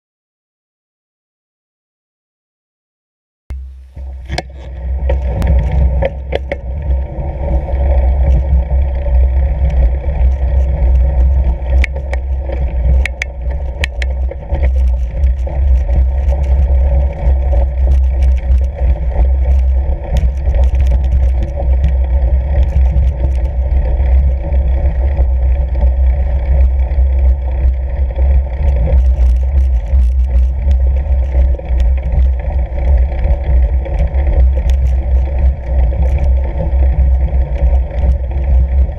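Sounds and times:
wind rumble on microphone: 3.5s - 38.9s
tyres rolling on snow: 4.8s - 38.9s
sharp clicks: 11.2s - 16.7s.

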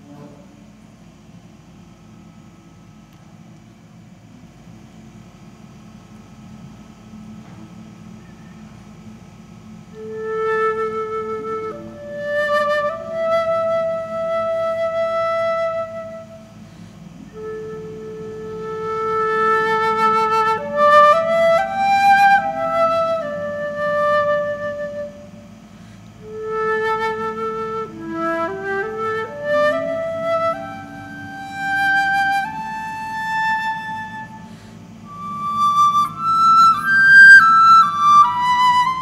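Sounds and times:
flute playing slow melody: 9.8s - 39.0s.

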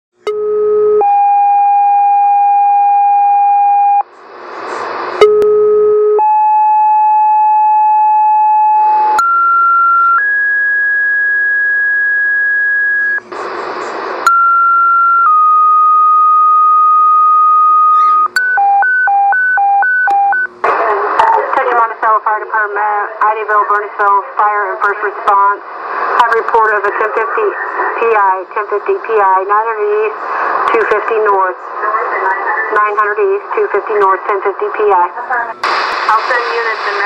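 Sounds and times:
radio static bursts: 4.0s - 5.2s, 13.0s - 14.3s, 20.6s - 37.0s.

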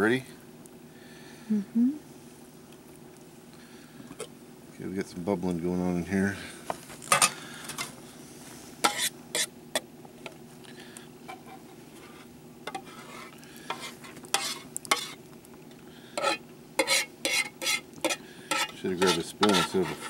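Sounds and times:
fork scraping pot: 8.8s - 9.5s, 11.3s - 15.2s, 16.2s - 20.0s.

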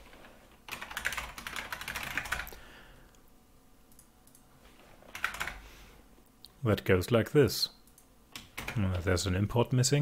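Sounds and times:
typing on computer keyboard: 0.7s - 2.5s, 5.1s - 5.6s, 7.9s - 8.9s.

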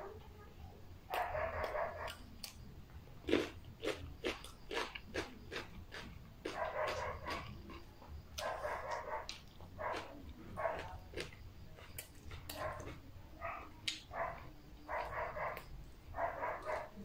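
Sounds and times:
dogs barking: 1.1s - 2.2s, 4.7s - 17.0s.

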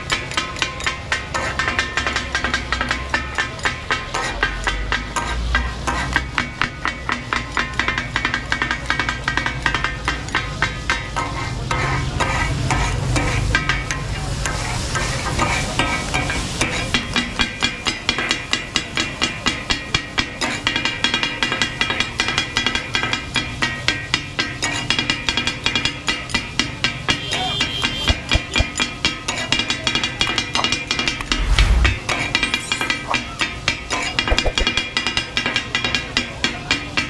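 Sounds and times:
metal spatulas chopping on griddle: 27.9s - 28.6s.

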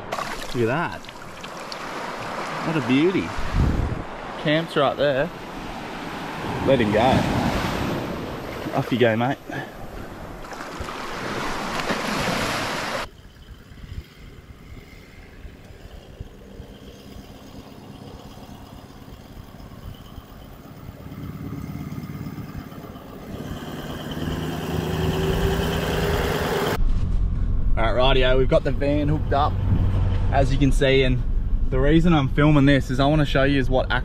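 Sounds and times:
waves washing on sandy shore: 0.0s - 13.1s
vehicle engine on dirt track: 12.9s - 32.6s.

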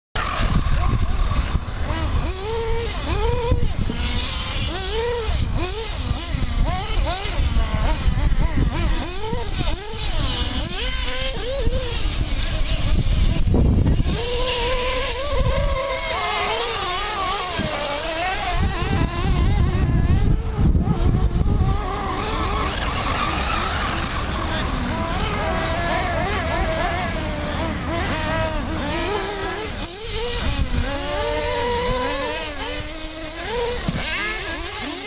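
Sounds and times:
model buggy engines whining: 0.2s - 35.0s.

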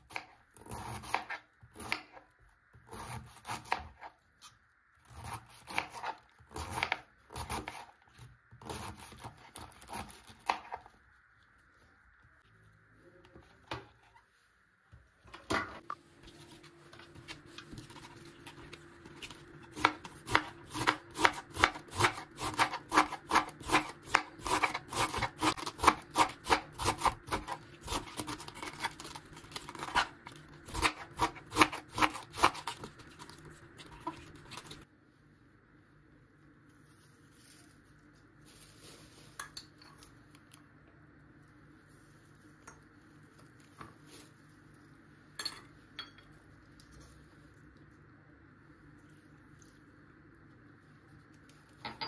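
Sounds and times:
knife slicing cabbage: 0.0s - 10.9s, 16.4s - 34.8s.

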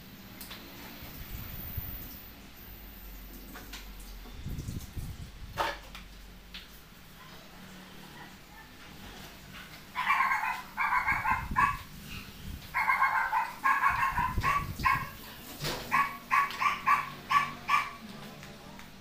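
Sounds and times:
dog barking high-pitched: 9.9s - 11.9s, 12.7s - 15.2s, 15.9s - 18.0s.

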